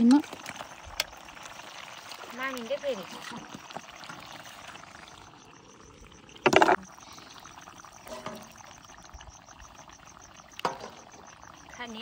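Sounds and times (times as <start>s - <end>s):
frog croaking: 1.3s - 12.0s.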